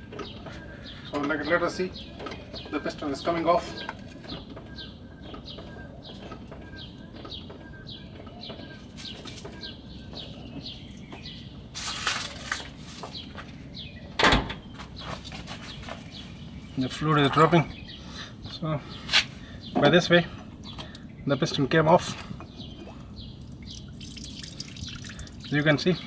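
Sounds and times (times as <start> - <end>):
small bird chirping: 20.6 - 26.0.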